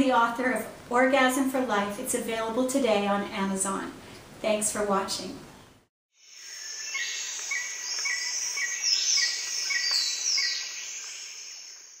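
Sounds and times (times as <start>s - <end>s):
light hiss: 5.5s - 12.0s
bird chirps: 6.4s - 12.0s.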